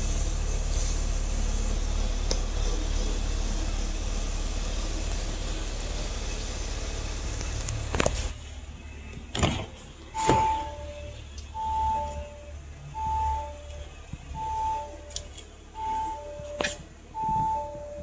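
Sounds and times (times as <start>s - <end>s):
two-tone door warning chime: 10.1s - 13.8s, 14.4s - 18.0s.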